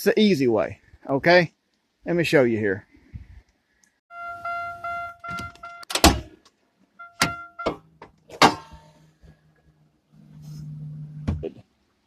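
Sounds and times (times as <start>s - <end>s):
car warning chime dinging: 4.1s - 5.9s, 7.0s - 7.9s
loud clunk: 7.2s - 9.0s.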